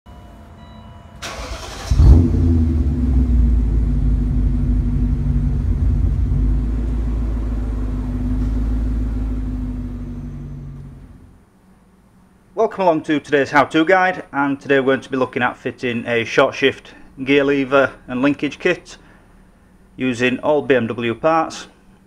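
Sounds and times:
car engine starting and idling: 1.2 - 11.5.

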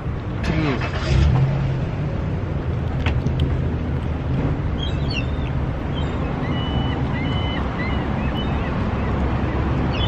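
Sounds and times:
low outdoor rumble: 0.0 - 10.0
small birds chirping: 4.7 - 10.0.

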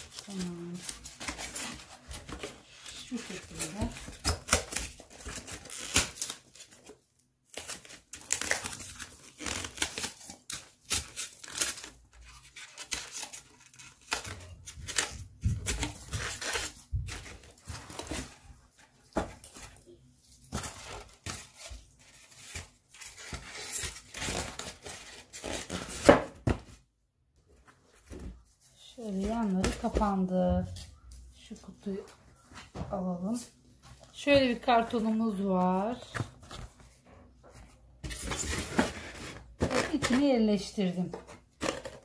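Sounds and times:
foam sheets squeaking and snapping: 2.9 - 6.8, 7.5 - 18.4.

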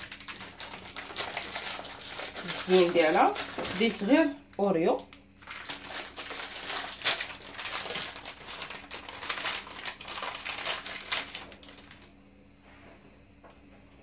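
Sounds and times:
plastic packet crinkling: 0.0 - 12.2.

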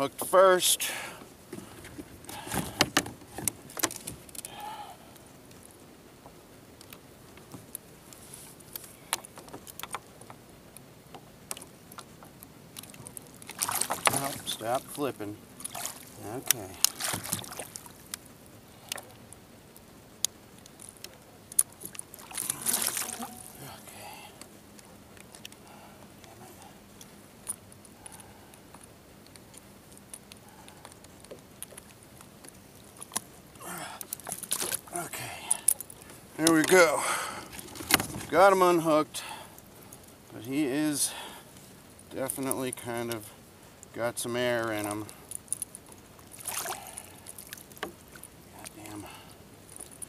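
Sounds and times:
fish flipping: 16.8 - 18.1, 21.8 - 23.6
light clicks and taps of hooks: 24.4 - 33.3, 42.2 - 49.1.

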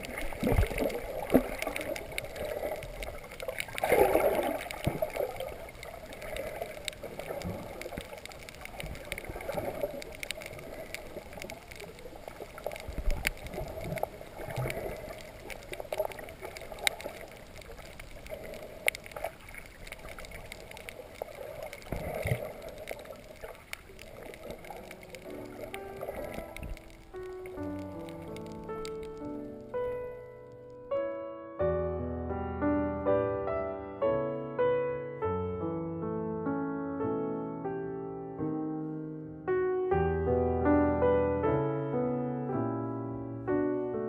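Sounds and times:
low surges of water: 0.0 - 30.3
muffled underwater water noise: 0.0 - 30.9
sharp clicks and crackles: 0.0 - 30.9
music: 25.3 - 44.0.

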